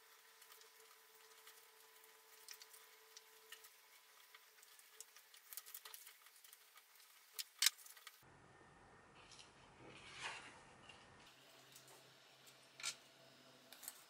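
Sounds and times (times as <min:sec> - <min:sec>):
paper rustling and crinkling: 0:00.4 - 0:08.2.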